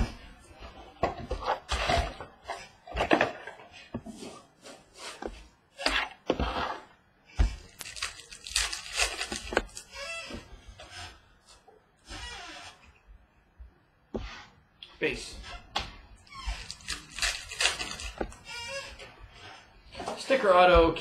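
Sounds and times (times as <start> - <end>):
card packs rustling and crinkling: 7.6 - 9.9.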